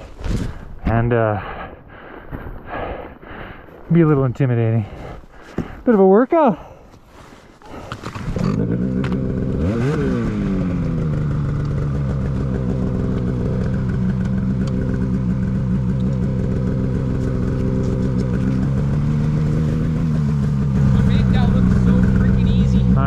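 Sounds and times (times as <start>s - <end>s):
snowmobile engine revving: 7.7s - 23.0s.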